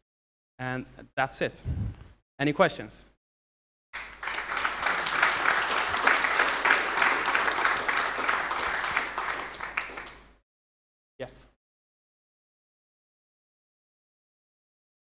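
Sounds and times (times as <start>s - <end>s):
audience applauding: 4.0s - 10.4s.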